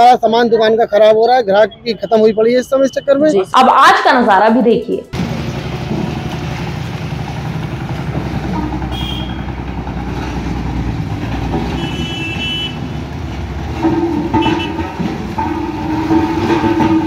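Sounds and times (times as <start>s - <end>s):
vehicle engines rumbling: 0.0s - 17.0s
vehicle horns tooting: 8.5s - 9.6s, 11.6s - 13.0s, 13.8s - 17.0s.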